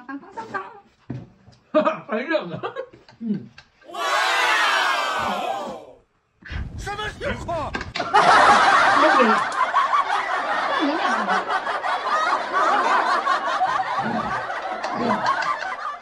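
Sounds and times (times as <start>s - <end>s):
canned laugh track: 12.4s - 16.0s.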